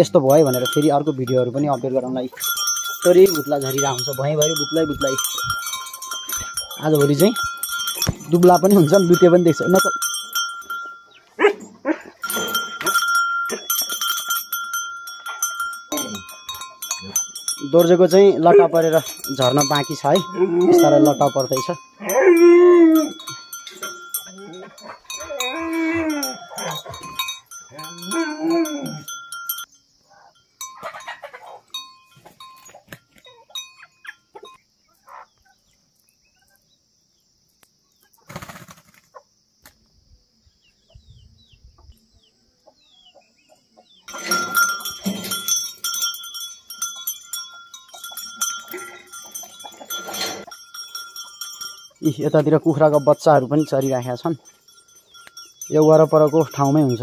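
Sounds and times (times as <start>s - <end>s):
collar bell clinking and ringing: 0.0s - 11.4s, 12.2s - 34.6s, 44.1s - 57.0s
dog whining: 22.0s - 23.4s, 24.3s - 27.0s, 27.8s - 29.1s.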